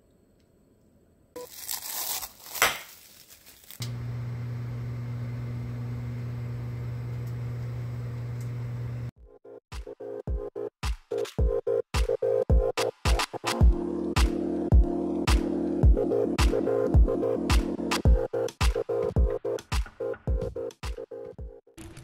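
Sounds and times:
crinkling rustle: 1.4s - 3.8s
microwave oven humming: 3.8s - 9.1s.

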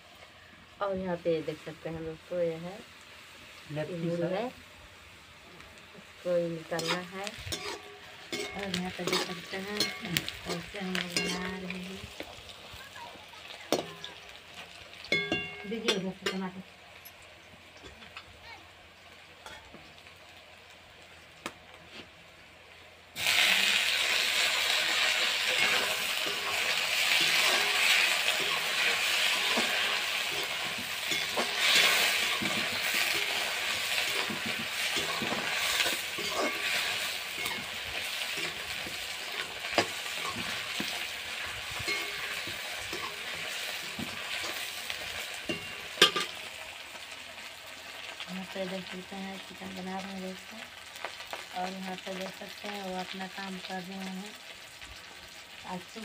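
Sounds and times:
loud sizzle in hot oil: 0.0s - 56.0s
metal spatula scraping pan: 6.7s - 11.9s, 24.6s - 44.9s.

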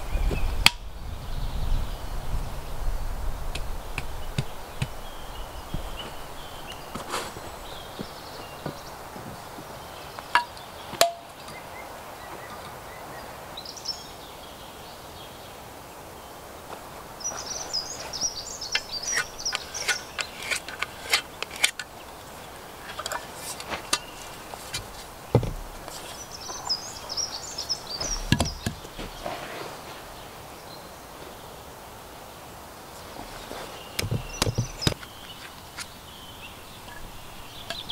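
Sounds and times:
small birds chirping: 0.0s - 37.9s
tools knocking on wooden posts: 10.4s - 11.2s, 23.9s - 25.9s, 28.0s - 29.3s, 34.0s - 35.1s
heavy thumps: 24.7s - 26.0s, 28.0s - 29.4s, 34.0s - 35.0s.

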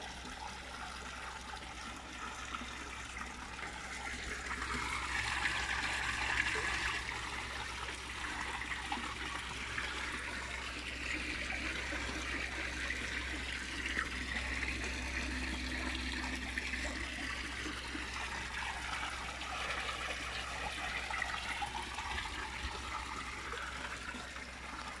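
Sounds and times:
pond water trickling and churning: 0.0s - 25.0s.

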